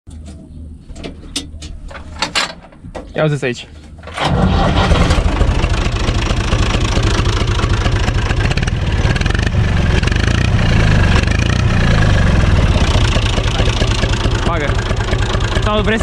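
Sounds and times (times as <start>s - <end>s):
diesel tractor engine idling: 4.2s - 16.0s.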